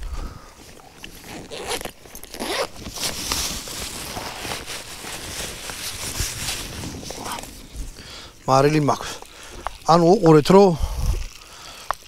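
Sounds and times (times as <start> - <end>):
fabric and contents rustling: 0.0 - 12.0
zipper pulled open: 1.0 - 7.6.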